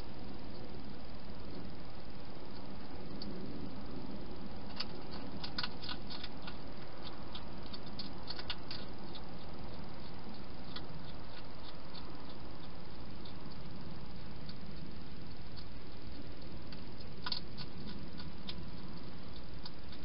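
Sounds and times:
steady hiss: 0:00.0 - 0:20.0
hedgehog chewing and crunching: 0:04.4 - 0:20.0.

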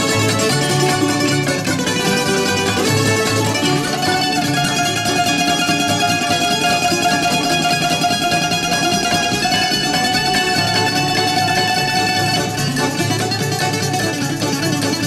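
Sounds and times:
bouzouki melody: 0:00.0 - 0:15.0
plucked string accompaniment: 0:00.0 - 0:15.0.

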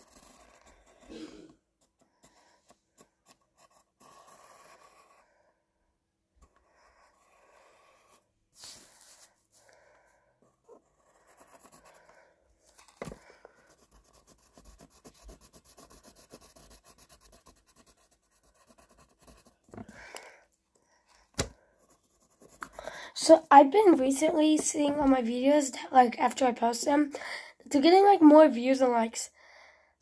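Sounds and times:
pencil scratching on paper: 0:00.0 - 0:05.6, 0:06.4 - 0:19.9, 0:21.7 - 0:25.2.

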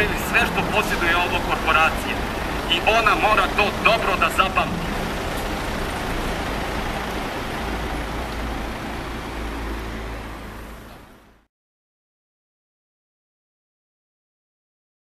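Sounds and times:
city street traffic rumble: 0:00.0 - 0:11.5.

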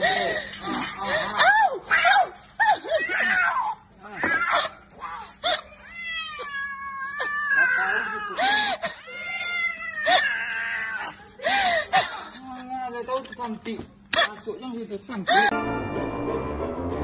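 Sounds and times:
cat yowling and meowing: 0:02.9 - 0:11.2.

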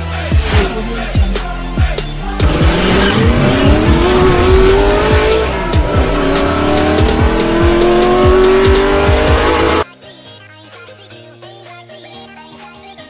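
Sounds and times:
electronic music with heavy beat: 0:00.0 - 0:09.9
car engine accelerating: 0:01.9 - 0:09.8.

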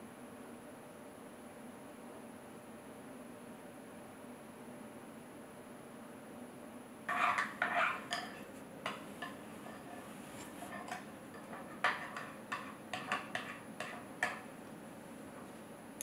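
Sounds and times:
metal spoon scraping glass bowl: 0:07.1 - 0:14.1.

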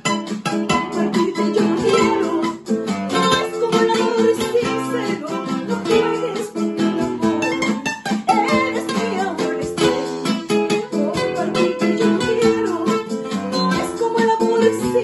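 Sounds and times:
acoustic guitars plucking: 0:00.0 - 0:15.0
woman singing: 0:00.5 - 0:15.0.

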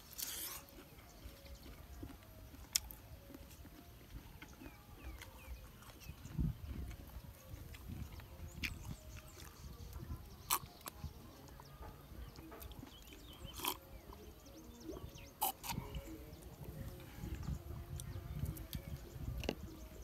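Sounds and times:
swallowing and slurping: 0:13.4 - 0:13.8, 0:15.0 - 0:16.1.

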